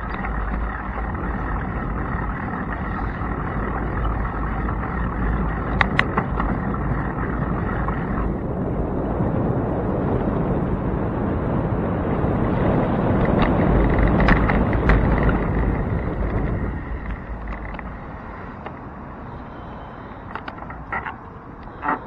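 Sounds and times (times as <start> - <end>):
bicycle tyres rumbling: 0.0 - 22.0
wind on microphone: 0.0 - 22.0
sharp rattling clicks: 13.2 - 18.9.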